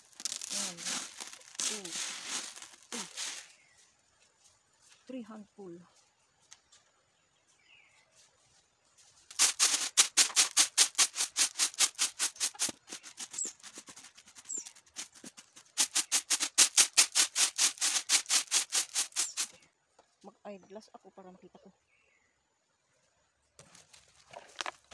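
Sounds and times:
coffee beans rattling on bamboo tray: 0.0s - 3.6s, 9.3s - 19.6s.

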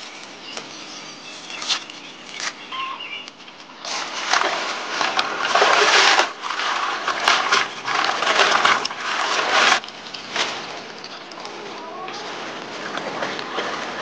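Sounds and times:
greens splashing in water: 3.8s - 14.0s.

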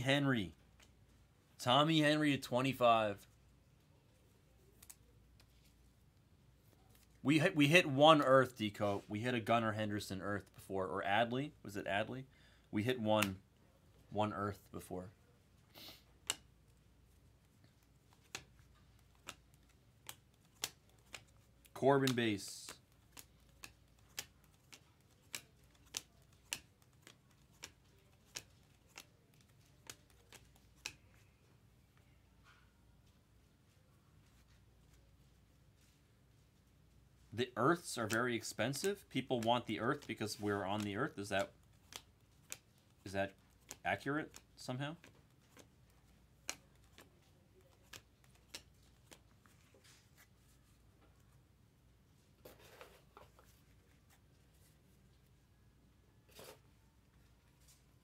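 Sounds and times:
soft rustle of cards: 0.0s - 58.0s
cards snapping while flipped: 16.2s - 16.5s, 18.1s - 31.0s, 38.0s - 42.7s, 43.5s - 45.7s, 46.4s - 49.3s.

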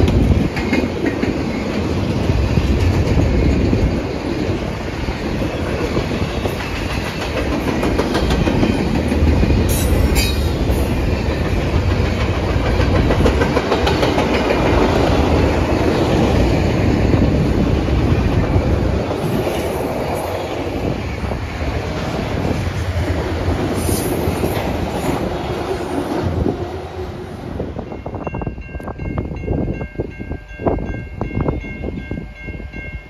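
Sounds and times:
wheels clattering over rail joints: 0.0s - 20.4s.

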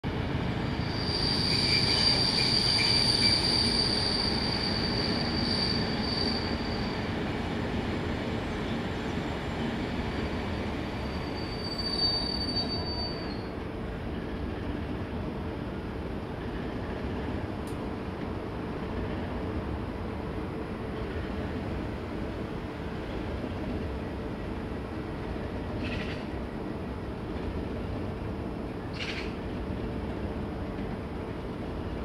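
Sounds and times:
train wheels squealing: 0.5s - 7.3s, 8.6s - 13.6s, 25.7s - 26.4s, 28.8s - 29.5s
train running rumble: 13.2s - 32.0s.

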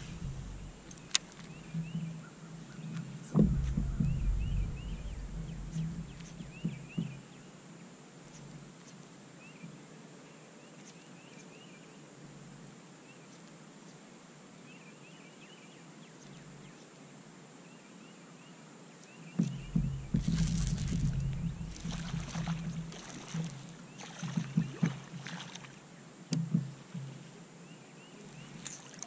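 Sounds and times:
low rumble: 0.0s - 1.8s, 3.4s - 7.2s, 19.4s - 23.8s
low knocks: 0.0s - 2.2s, 3.3s - 7.3s, 19.4s - 25.3s
birds chirping: 0.0s - 7.5s, 19.0s - 25.8s, 27.2s - 29.0s
faint steady hiss: 0.0s - 29.0s.

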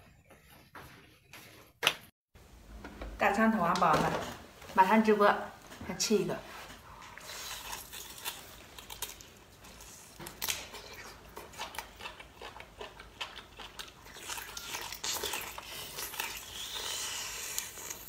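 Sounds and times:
person chewing meat: 6.9s - 18.0s.

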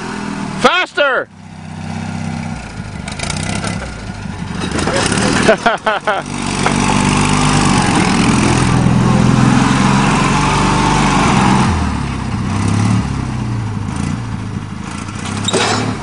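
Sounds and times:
atv engine revving: 0.0s - 16.0s.

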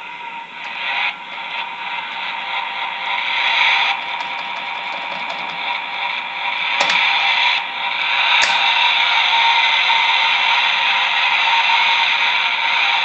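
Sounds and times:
sharp click: 8.4s - 8.7s.

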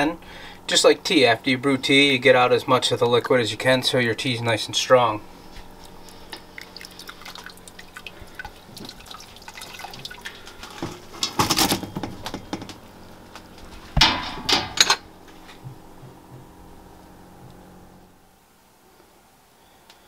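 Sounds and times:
tea dripping from strainer: 5.7s - 10.6s.

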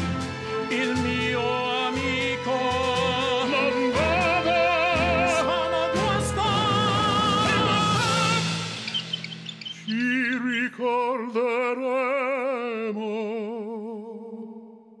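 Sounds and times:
man singing opera: 0.0s - 8.9s, 9.8s - 15.0s
faint accompaniment: 0.0s - 9.4s.

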